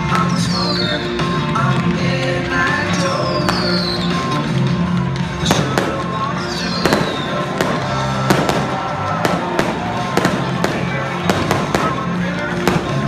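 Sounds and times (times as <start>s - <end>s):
music playing: 0.0s - 13.0s
fireworks banging: 5.3s - 13.0s.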